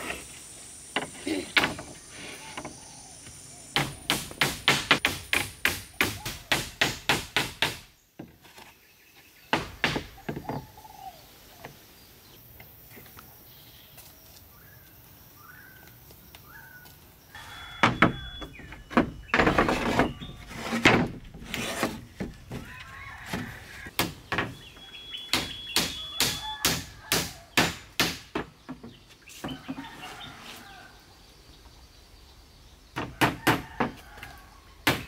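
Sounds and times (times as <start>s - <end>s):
wood thumping and scraping: 0.0s - 5.6s, 7.2s - 8.8s, 9.5s - 10.8s, 17.4s - 24.8s, 27.7s - 30.6s
bird chirps: 13.3s - 20.5s, 24.5s - 27.5s.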